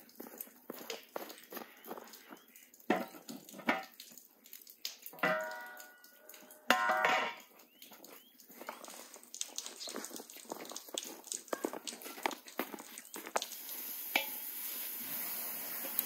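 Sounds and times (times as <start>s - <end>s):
metal lid clanking: 6.7s - 7.4s.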